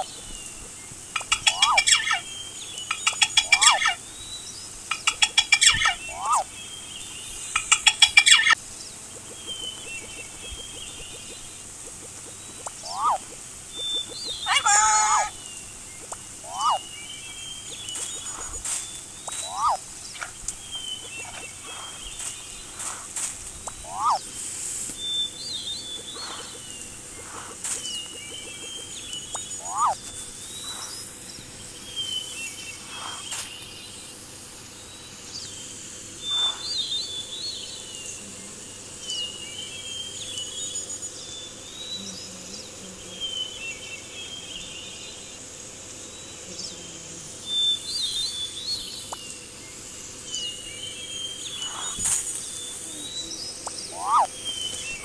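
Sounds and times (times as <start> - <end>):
sharp bird chirps: 0.0 - 8.6, 9.2 - 34.1, 34.9 - 37.9, 50.3 - 55.0
birds twittering: 0.0 - 55.0.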